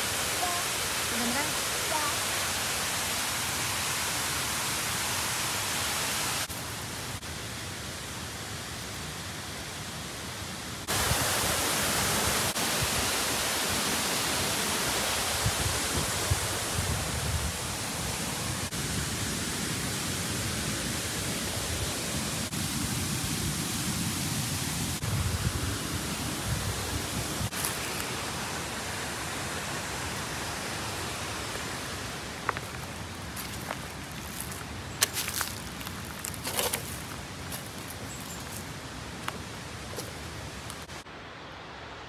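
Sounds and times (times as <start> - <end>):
water flowing: 0.0 - 7.4, 10.8 - 18.8, 25.9 - 41.8.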